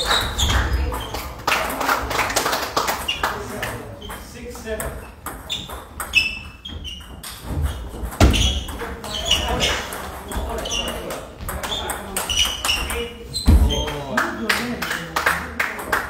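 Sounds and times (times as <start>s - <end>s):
voices in a hall: 0.0s - 16.0s
heavy thumps: 5.2s - 9.6s.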